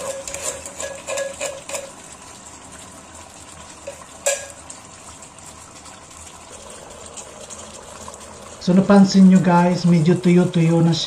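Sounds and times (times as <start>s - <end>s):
metal spoon clinking on metal: 0.0s - 1.9s.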